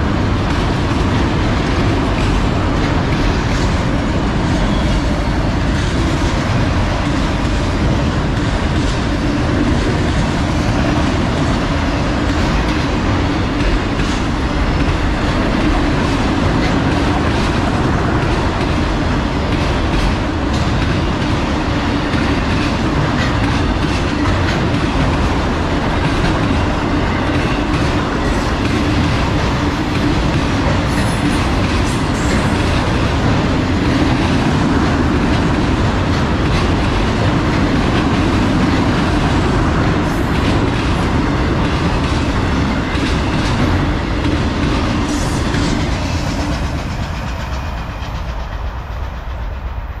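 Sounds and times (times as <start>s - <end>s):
freight train rolling on rails: 0.0s - 50.0s.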